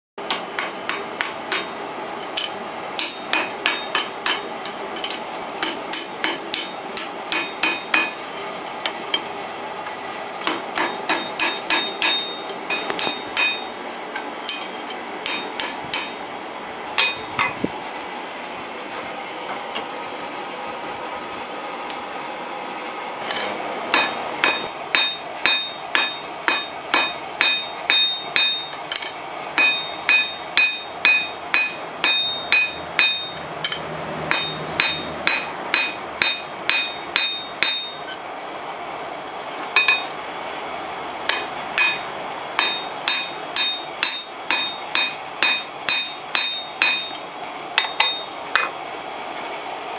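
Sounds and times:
hammer striking metal on anvil: 0.2 - 1.8, 2.4 - 8.3, 10.4 - 13.8, 14.5 - 16.3, 17.0 - 17.6, 23.3 - 38.3, 39.8 - 40.1, 41.3 - 48.8.

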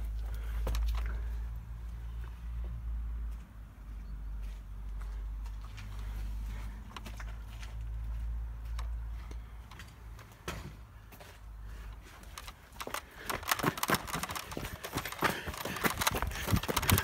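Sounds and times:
footsteps on gritty paving: 2.6 - 17.0
phone handling rustle: 12.3 - 17.0
plastic toy clatter: 12.3 - 17.0.

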